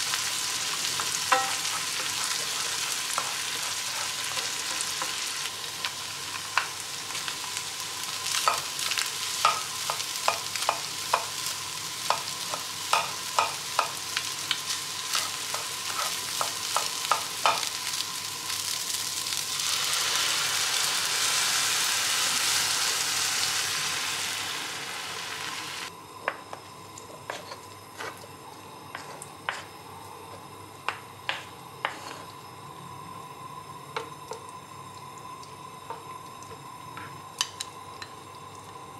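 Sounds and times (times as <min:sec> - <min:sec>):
liquid hissing in hot pan: 0:00.0 - 0:25.9
rice and egg sizzling in pan: 0:00.0 - 0:38.9.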